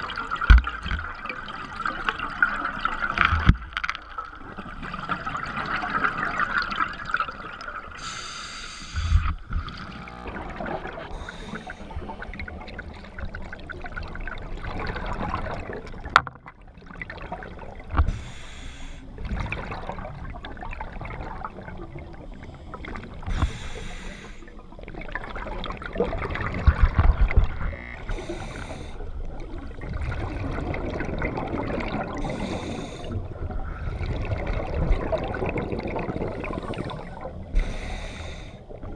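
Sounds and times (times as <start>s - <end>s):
bubbles gurgling underwater: 0.0s - 8.0s, 9.0s - 18.0s, 19.1s - 23.5s, 24.5s - 38.1s
diver breathing through regulator: 8.0s - 10.0s, 10.9s - 12.2s, 18.1s - 19.1s, 22.4s - 24.5s, 28.0s - 29.2s, 32.1s - 34.2s, 36.4s - 38.8s.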